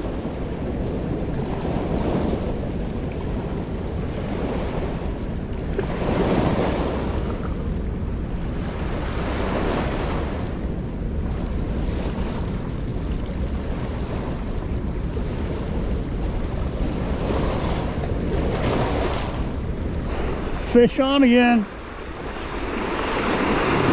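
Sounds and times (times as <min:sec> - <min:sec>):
wind buffeting microphone: 0:00.0 - 0:23.9
waves washing onto rocky shore: 0:08.5 - 0:23.9.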